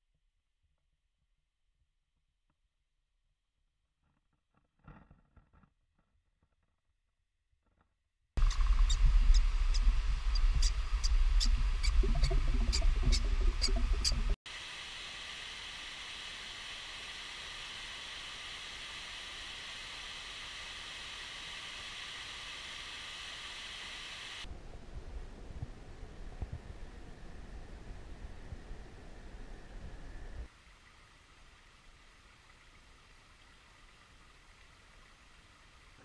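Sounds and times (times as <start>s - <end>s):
low rumble: 8.4s - 14.4s.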